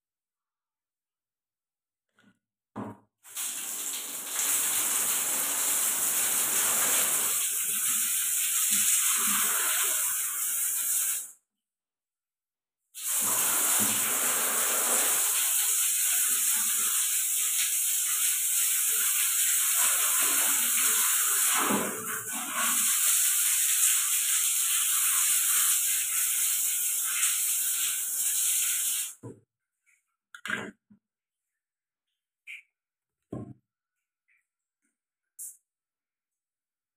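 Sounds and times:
water running from a tap: 0:03.3 - 0:11.4, 0:13.0 - 0:29.2.

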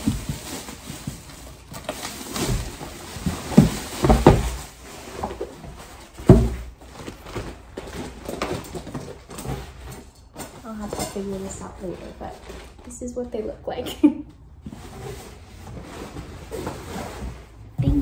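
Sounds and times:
laundry baskets rustling: 0:00.0 - 0:18.0
dull thumps and knocks: 0:02.5 - 0:09.1, 0:16.6 - 0:18.0.

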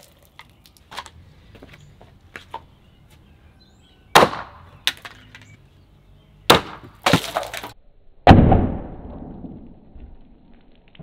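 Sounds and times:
axe chopping through plastic bottle: 0:04.1 - 0:05.3, 0:06.5 - 0:08.5.

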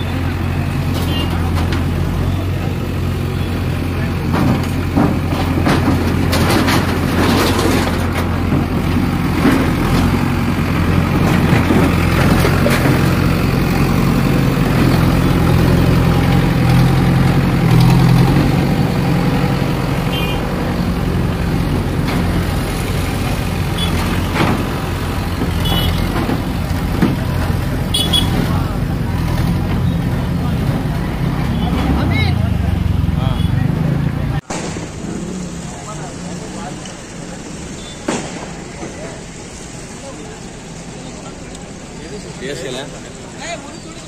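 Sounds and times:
diesel engine droning: 0:00.0 - 0:44.0
knocks and clatters: 0:00.8 - 0:02.2, 0:04.2 - 0:31.9.

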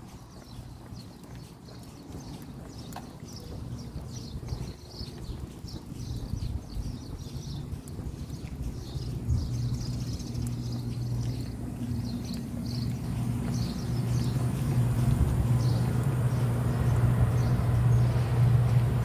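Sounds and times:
engine running: 0:05.8 - 0:19.0.

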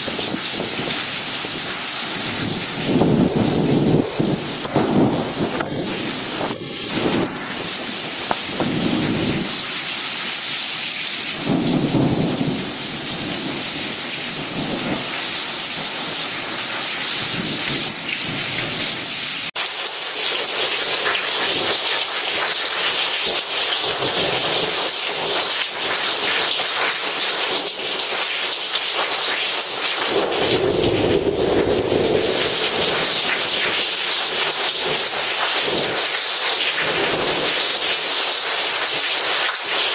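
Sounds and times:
low thunder rumbling: 0:00.0 - 0:09.9, 0:11.2 - 0:19.1, 0:30.1 - 0:33.8
heavy rain pouring: 0:00.0 - 0:39.9.

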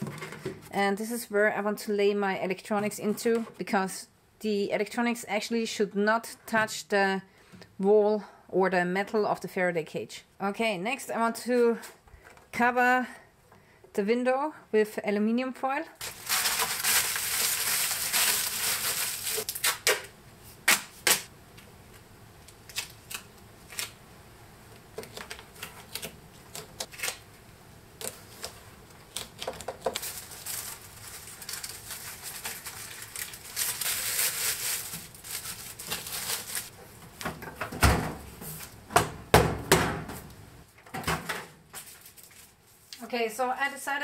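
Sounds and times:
aluminium foil crinkling: 0:16.0 - 0:20.1, 0:22.4 - 0:24.0, 0:25.0 - 0:27.3, 0:28.0 - 0:36.8, 0:41.8 - 0:42.6.

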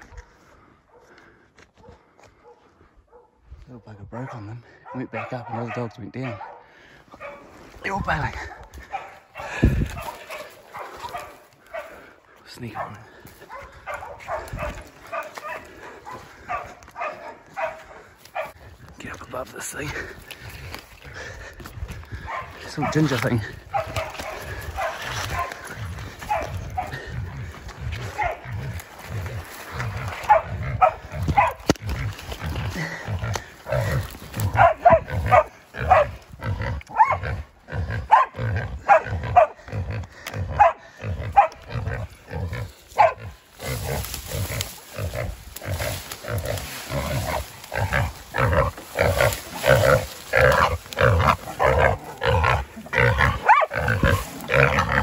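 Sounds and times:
footsteps through undergrowth: 0:07.0 - 0:38.6, 0:40.4 - 0:55.0
pig squealing and grunting: 0:22.1 - 0:55.0.

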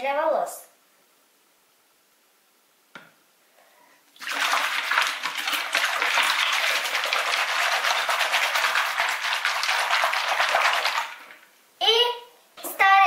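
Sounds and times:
hands scrubbing in soapy water: 0:04.2 - 0:11.4.

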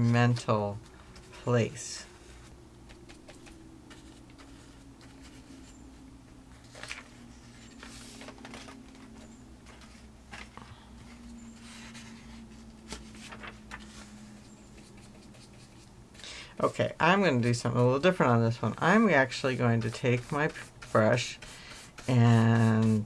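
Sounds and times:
paper rustling: 0:00.0 - 0:15.9
low steady hum: 0:00.0 - 0:23.0
paintbrush scuffing on palette: 0:19.5 - 0:23.0.

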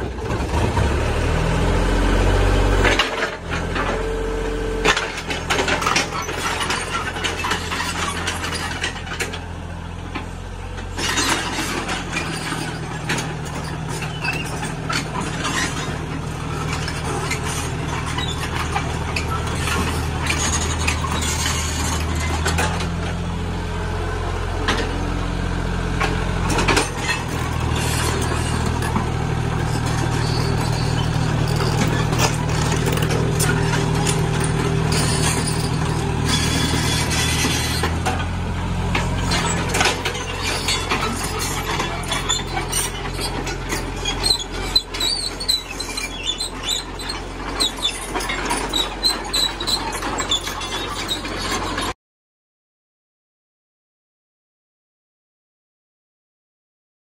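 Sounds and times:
excavator diesel engine running: 0:00.0 - 0:52.0
metal clanks and rattles: 0:04.8 - 0:09.5, 0:10.8 - 0:23.2, 0:26.0 - 0:51.9.

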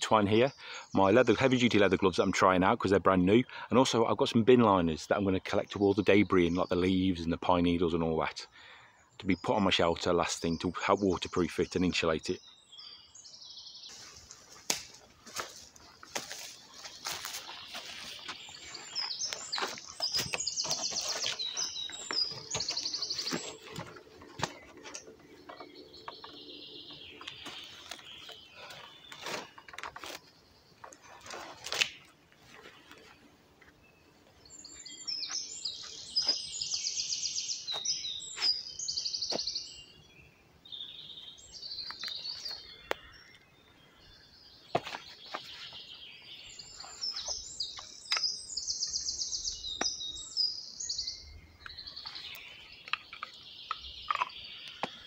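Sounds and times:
songbird singing trills: 0:00.0 - 0:55.0
wooden branch and twine handling: 0:13.9 - 0:26.4, 0:27.1 - 0:33.7.

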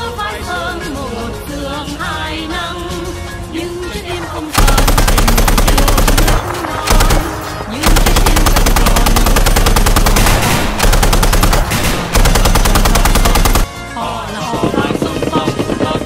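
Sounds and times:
music: 0:00.0 - 0:16.0
machine-gun fire: 0:04.6 - 0:13.7.

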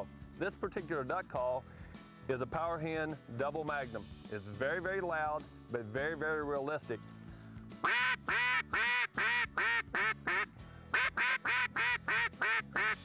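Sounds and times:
duck call quacking: 0:07.8 - 0:13.0.

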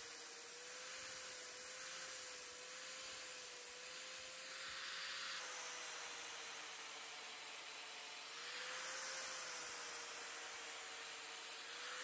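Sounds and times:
angle grinder motor whine: 0:00.0 - 0:12.0
sandpaper hissing on wood: 0:08.4 - 0:12.0.

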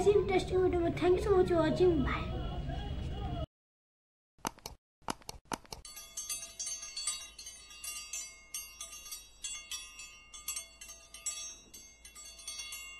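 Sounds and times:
sharp clicks: 0:04.4 - 0:05.9
tinkling bell chime: 0:05.9 - 0:12.9.

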